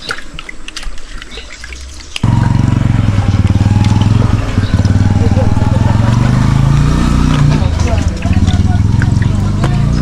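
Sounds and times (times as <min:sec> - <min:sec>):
loud pulsing engine: 0:02.2 - 0:10.0.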